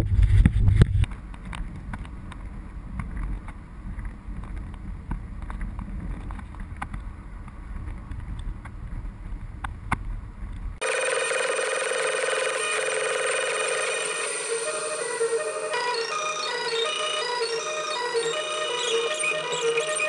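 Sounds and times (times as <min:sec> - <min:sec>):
car road and engine rumble: 0:00.0 - 0:10.8
loud music: 0:13.7 - 0:20.0.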